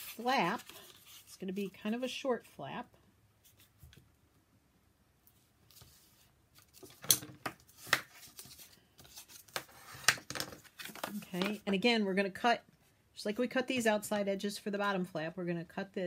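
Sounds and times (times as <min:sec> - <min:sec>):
paper crackles and scrapes: 0:00.0 - 0:01.9
cardstock folding and creasing: 0:06.6 - 0:11.6.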